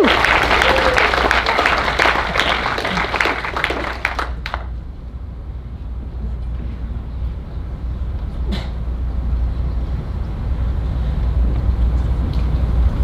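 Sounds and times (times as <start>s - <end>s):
audience applause: 0.0s - 4.7s
steady low room hum: 0.0s - 13.0s.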